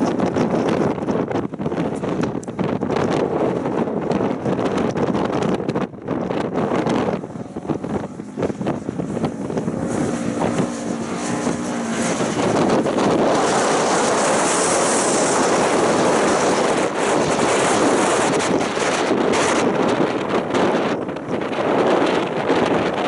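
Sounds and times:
wind buffeting microphone: 0.0s - 23.0s
utility vehicle engine running: 6.2s - 23.0s.

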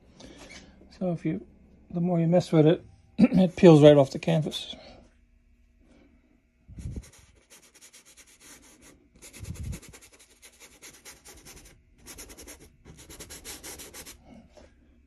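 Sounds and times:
paintbrush scrubbing canvas: 6.8s - 14.3s.

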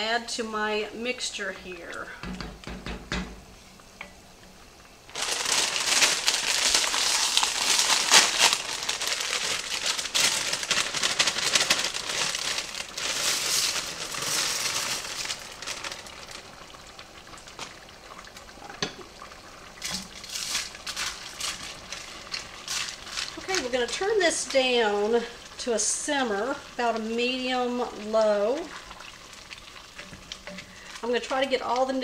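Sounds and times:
plastic bag crinkling: 5.1s - 17.9s, 19.8s - 24.6s
wooden spoon stirring: 28.2s - 31.7s.

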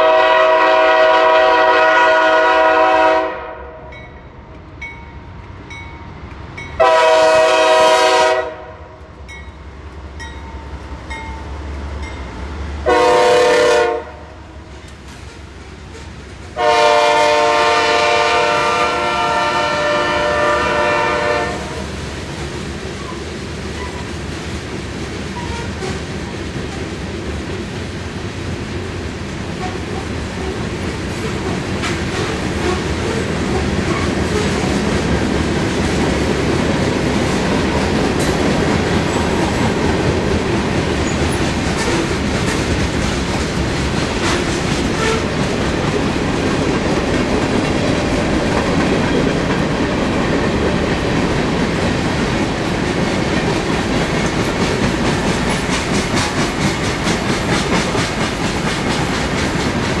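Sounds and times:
freight train rumbling past: 0.0s - 60.0s
train wheels clicking over rail joints: 14.7s - 17.2s, 21.7s - 60.0s.

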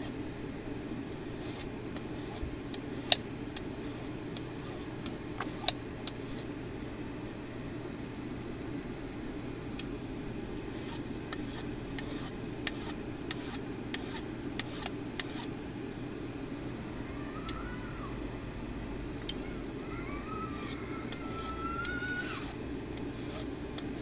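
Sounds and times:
low steady hum: 0.0s - 24.0s
hand file scraping steel: 1.4s - 3.2s, 3.8s - 6.5s, 10.6s - 15.5s, 20.4s - 24.0s.

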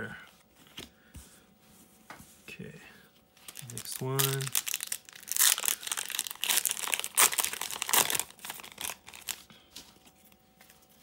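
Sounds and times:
foil wrapper crinkling: 3.4s - 9.5s.

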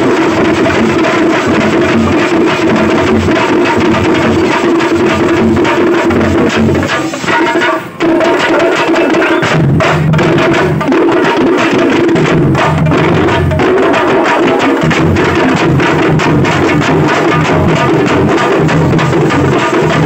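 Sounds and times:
barrel drum: 0.0s - 20.0s
frame drums beaten with sticks: 0.0s - 20.0s.

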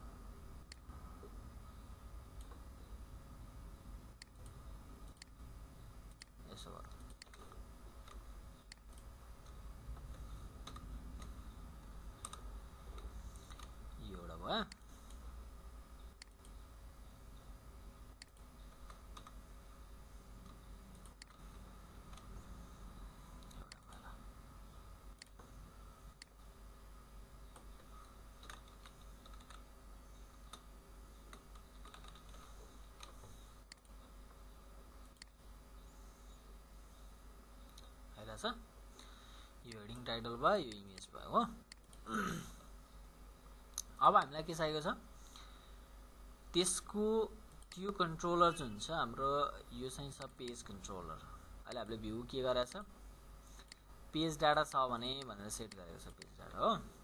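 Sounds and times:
steady low hum: 0.0s - 57.0s
computer keys and mouse clicks: 4.2s - 5.4s, 6.1s - 11.4s, 12.2s - 13.8s, 16.1s - 16.6s, 18.2s - 19.4s, 20.3s - 22.4s, 23.4s - 24.0s, 25.1s - 26.4s, 27.5s - 29.7s, 30.4s - 30.7s, 31.3s - 34.0s, 35.0s - 35.4s, 40.6s - 42.0s, 53.5s - 53.9s, 54.7s - 56.4s.

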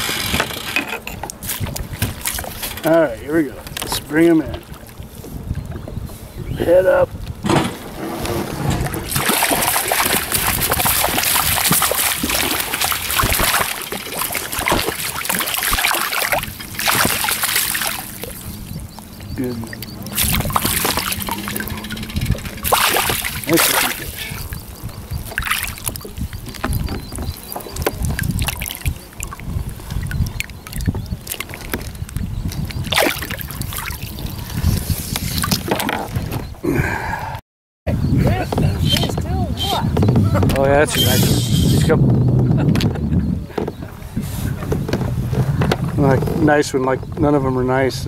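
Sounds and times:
wind rumble on microphone: 0.0s - 48.0s
water splashing and dripping: 9.0s - 34.5s.

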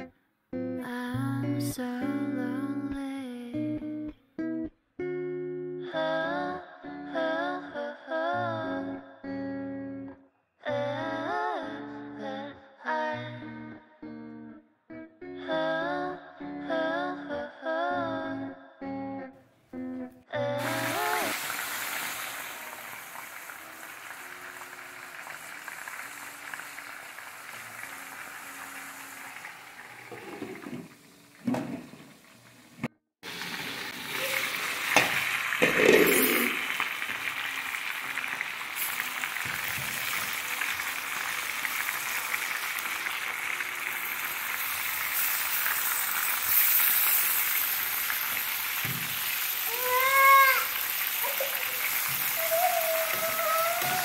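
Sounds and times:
food sizzling in a pan: 20.6s - 54.0s.

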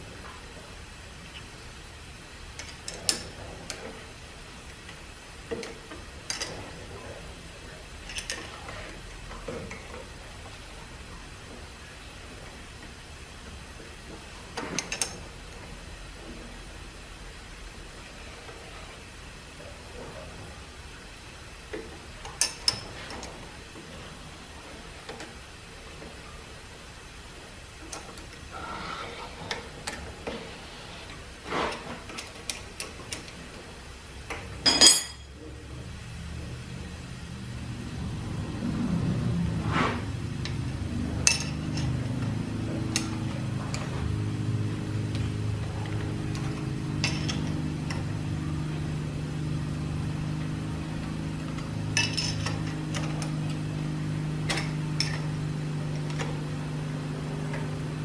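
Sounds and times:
low machine hum: 0.0s - 58.0s.

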